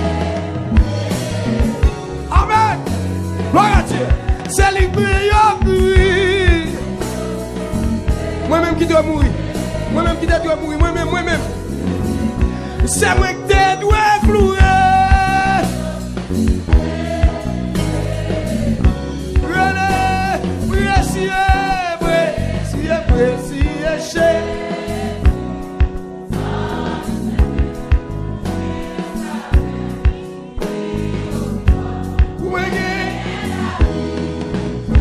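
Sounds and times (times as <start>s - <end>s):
drum hits: 0.0s - 21.8s
band playing: 0.0s - 35.0s
people singing gospel song: 0.0s - 35.0s
steady bass line: 0.0s - 35.0s.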